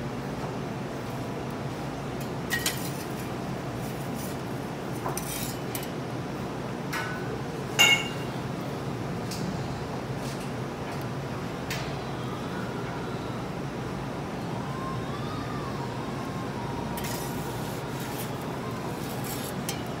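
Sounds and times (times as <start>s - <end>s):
dishes clinking: 7.8s - 8.3s.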